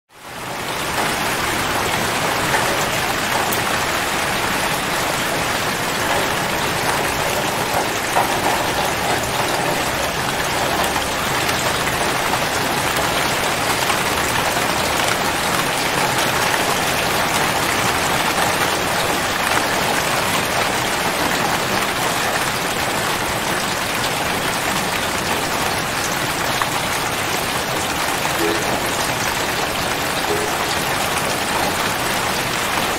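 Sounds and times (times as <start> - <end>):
steady rain: 0.1 - 32.9.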